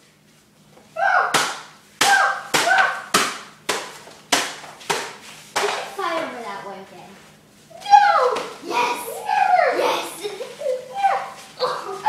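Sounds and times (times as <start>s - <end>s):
magazines slapping: 1.3s - 5.9s.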